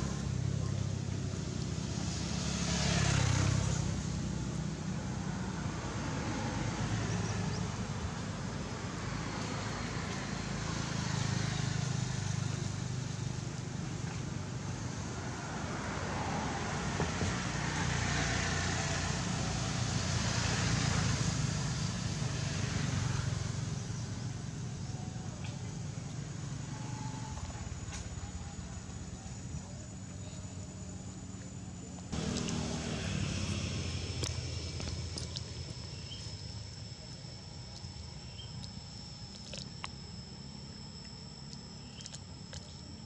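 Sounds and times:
road traffic passing: 0:00.0 - 0:43.0.

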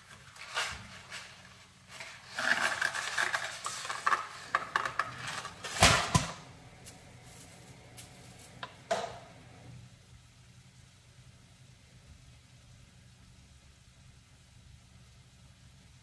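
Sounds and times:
packaging crackling: 0:00.0 - 0:08.7.

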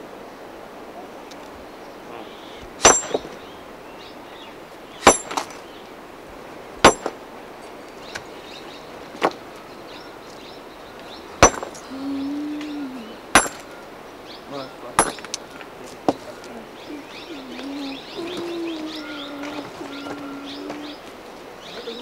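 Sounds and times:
hammer striking stone: 0:02.8 - 0:03.3, 0:05.0 - 0:05.6, 0:06.8 - 0:07.2, 0:11.4 - 0:11.8, 0:13.3 - 0:13.7, 0:15.0 - 0:15.4.

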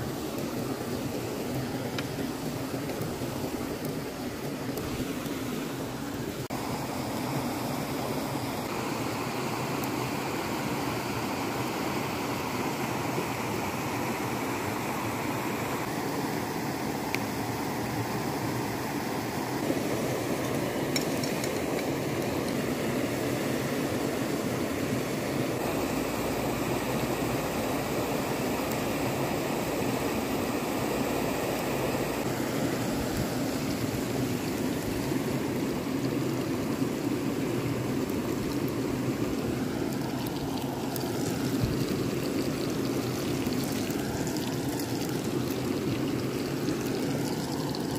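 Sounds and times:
creek rushing over stones: 0:00.0 - 0:47.9.

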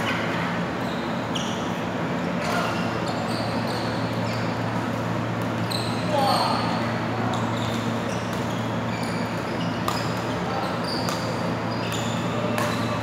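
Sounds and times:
low hum in hall: 0:00.0 - 0:13.0
shoes squeaking on court: 0:00.0 - 0:13.0
rackets hitting shuttlecock: 0:09.2 - 0:13.0.

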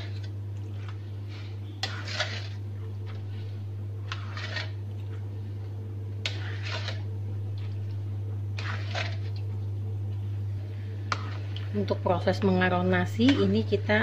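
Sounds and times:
spatula scraping wok: 0:00.0 - 0:04.8, 0:06.2 - 0:07.2, 0:08.4 - 0:09.3, 0:11.0 - 0:12.1
steady low hum: 0:00.0 - 0:14.0.

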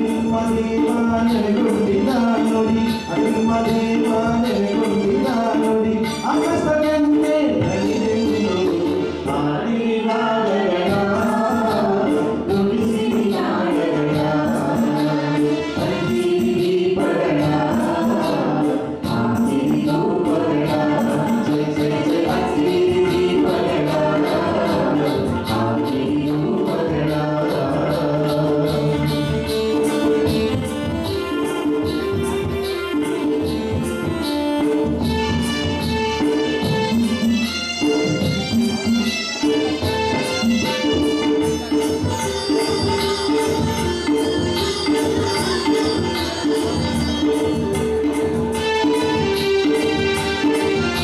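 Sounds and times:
man and women singing folk song: 0:00.0 - 0:29.4
harmonium: 0:00.0 - 0:51.0
steady percussion beat: 0:00.0 - 0:51.0.

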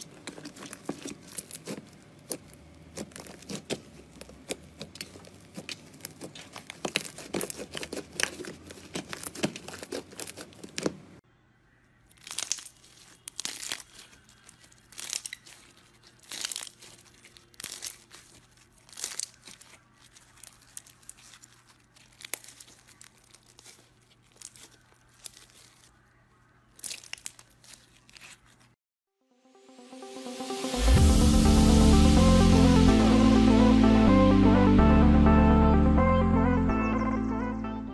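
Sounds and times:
slime crackling and popping: 0:00.0 - 0:11.2, 0:12.1 - 0:26.0, 0:26.7 - 0:28.8
slime squishing: 0:00.0 - 0:11.2, 0:12.1 - 0:28.8.

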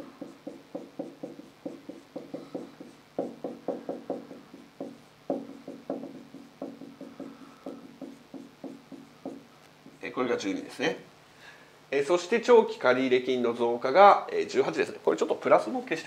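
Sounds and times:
marker writing on whiteboard: 0:00.0 - 0:10.1.

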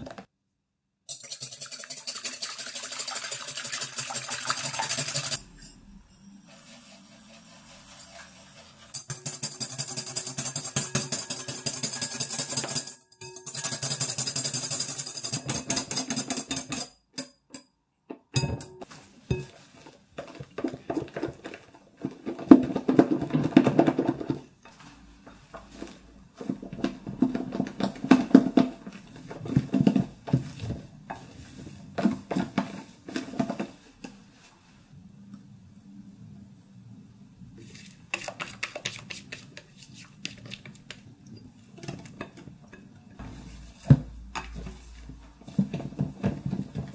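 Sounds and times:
wire whisk clattering in glass bowl: 0:01.1 - 0:05.8, 0:08.9 - 0:17.3.

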